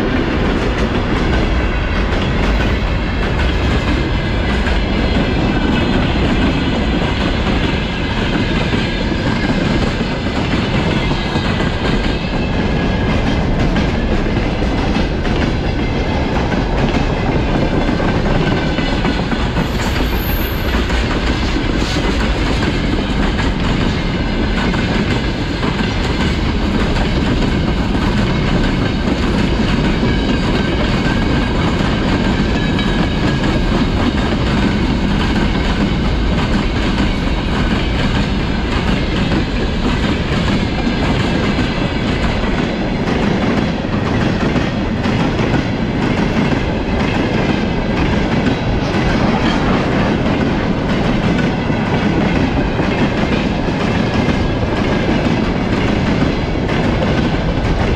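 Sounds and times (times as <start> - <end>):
train wheels rumbling on rails: 0.0 - 57.9.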